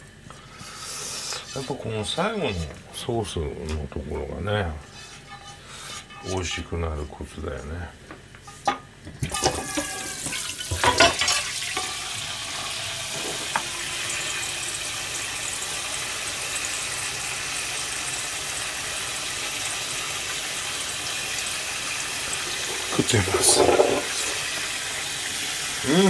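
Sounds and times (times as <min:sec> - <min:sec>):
pan and dishes clattering: 0:08.4 - 0:12.2, 0:13.0 - 0:13.7, 0:22.3 - 0:24.6
tap running into metal sink: 0:22.6 - 0:24.4.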